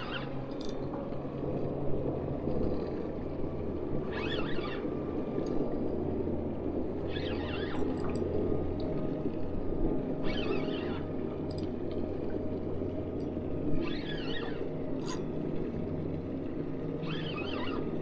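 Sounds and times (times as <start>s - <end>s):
water noise: 0.0s - 18.0s
wind: 0.0s - 18.0s
wavering high cries: 4.1s - 4.9s, 7.0s - 8.0s, 10.2s - 11.2s, 13.8s - 14.7s, 17.0s - 18.0s.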